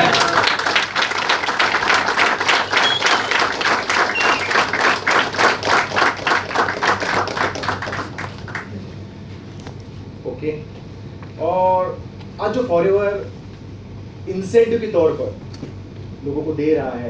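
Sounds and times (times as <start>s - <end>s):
audience clapping in unison: 0.0s - 8.8s.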